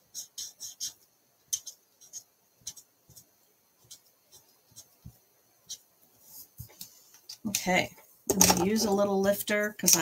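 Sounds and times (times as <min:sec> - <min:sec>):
marker nib scratching on card: 0:00.0 - 0:05.1.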